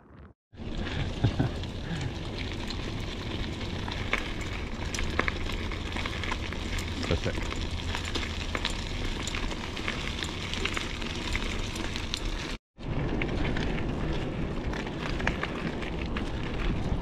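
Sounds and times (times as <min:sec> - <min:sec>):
tyres crunching on gravel: 0:00.0 - 0:17.0
wind rumble on microphone: 0:00.2 - 0:17.0.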